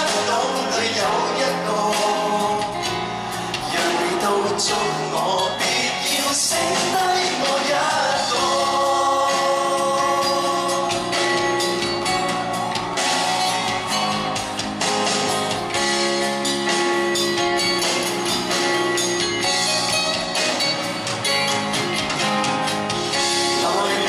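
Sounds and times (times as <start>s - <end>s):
person singing: 0.0s - 14.4s, 23.1s - 24.0s
live band playing pop song: 0.0s - 24.0s.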